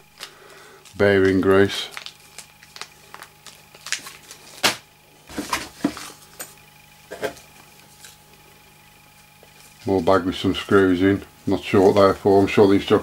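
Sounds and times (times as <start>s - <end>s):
plastic bag crinkling: 0.0s - 6.3s.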